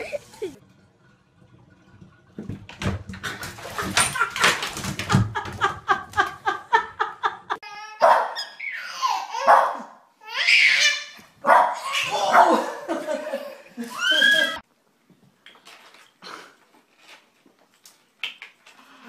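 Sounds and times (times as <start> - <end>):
person laughing: 0.0 - 0.6, 12.3 - 14.6
dog yipping and whining: 8.0 - 9.7.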